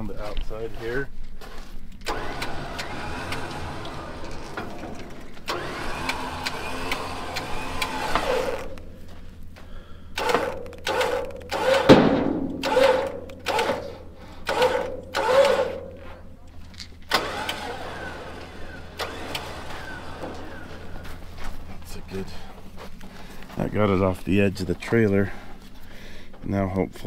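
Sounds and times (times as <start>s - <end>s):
winch pulling: 2.0s - 9.0s, 10.2s - 21.7s.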